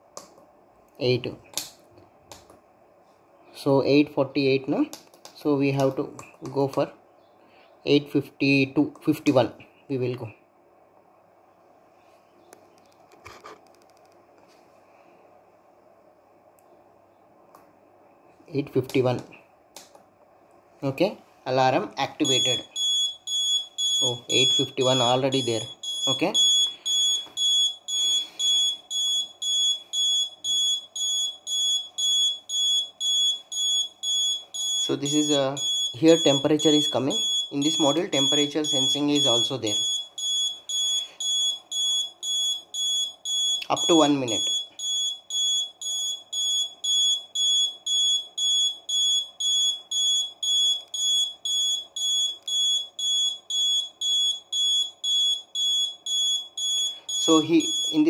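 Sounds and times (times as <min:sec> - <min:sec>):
alarm clock buzzer beeping: 0:22.2 - 0:58.0.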